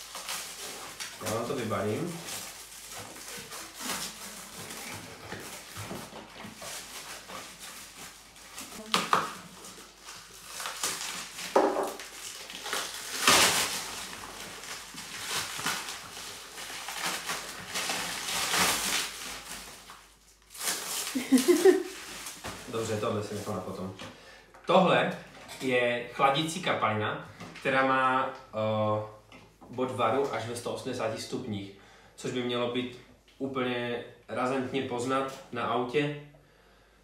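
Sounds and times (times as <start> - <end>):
plastic wrapping crinkling: 0.0 - 24.0.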